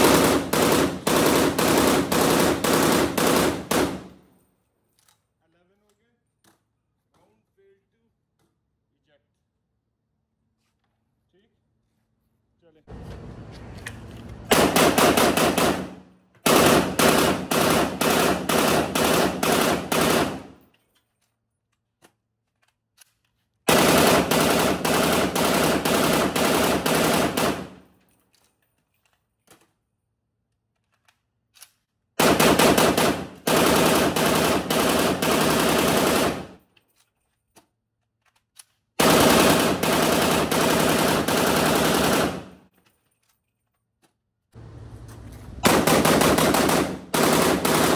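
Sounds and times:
rifle firing bursts: 0.0s - 4.2s, 14.5s - 20.6s, 23.7s - 27.8s, 32.2s - 36.6s, 39.0s - 42.6s, 45.5s - 47.9s.

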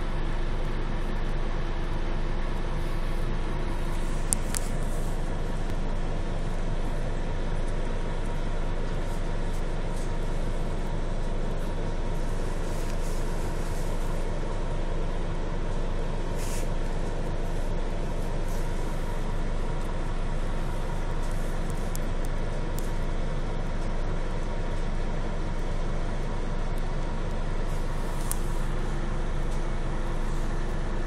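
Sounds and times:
bus engine drone: 0.0s - 31.0s
short hiss: 16.3s - 16.8s.

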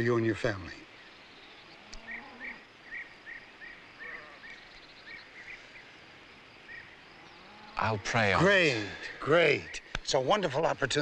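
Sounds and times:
small bird chirping: 0.0s - 8.1s
background hiss: 0.0s - 11.0s.

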